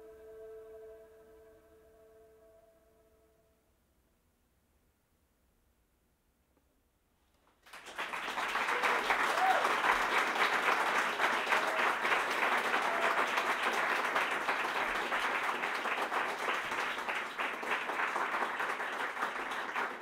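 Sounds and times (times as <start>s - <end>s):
audience applauding: 7.6s - 20.0s.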